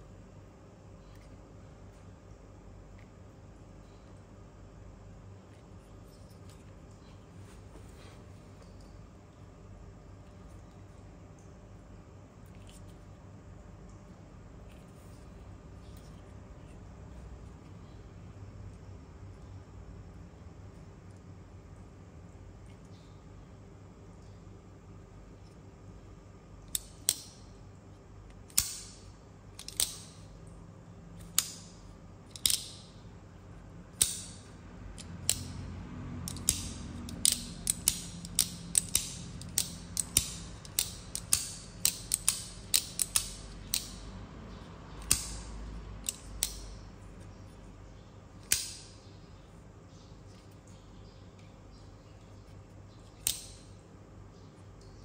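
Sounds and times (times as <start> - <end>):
folding knife metallic clicks: 29.6 - 30.2, 32.3 - 32.9, 34.0 - 34.4, 35.0 - 35.6, 36.3 - 44.0, 45.0 - 46.8, 48.4 - 48.9, 53.2 - 53.6.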